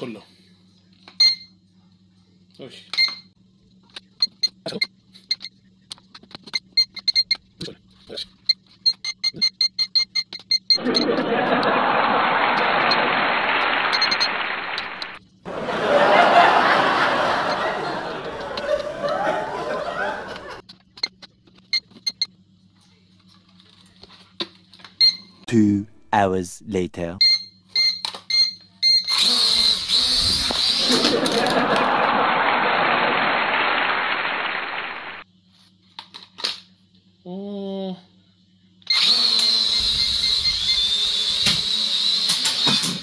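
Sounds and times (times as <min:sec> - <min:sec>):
faint low hum: 0:00.0 - 0:27.8
toy drone electronic beeps: 0:08.4 - 0:11.1, 0:13.9 - 0:15.2, 0:27.2 - 0:30.9, 0:38.9 - 0:42.3.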